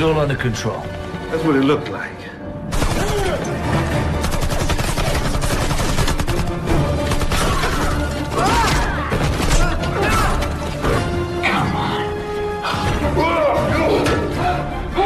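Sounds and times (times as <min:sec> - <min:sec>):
action music: 0:00.0 - 0:15.0
automatic gunfire: 0:02.7 - 0:03.4, 0:04.2 - 0:07.8.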